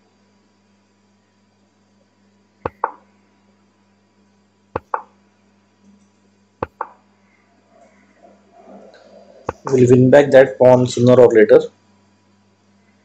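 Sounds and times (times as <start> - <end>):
faint electrical hum: 0.0 - 13.0
mouse click: 2.7 - 3.0, 4.8 - 5.1, 6.6 - 7.0.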